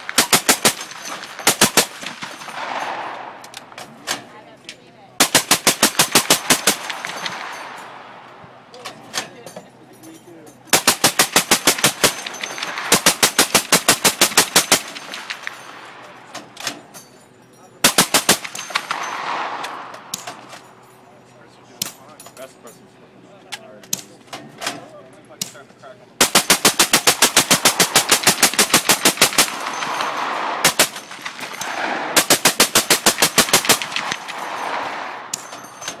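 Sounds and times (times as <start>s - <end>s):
suppressed machine gun bursts: 0.0s - 4.2s, 5.2s - 8.2s, 10.7s - 16.8s, 17.8s - 20.7s, 26.2s - 36.0s.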